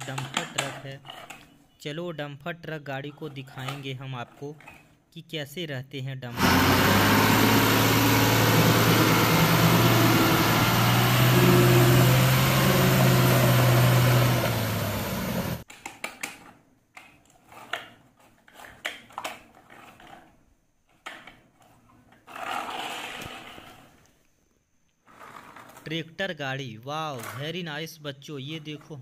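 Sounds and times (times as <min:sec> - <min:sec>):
diesel truck engine running: 0:06.3 - 0:15.6.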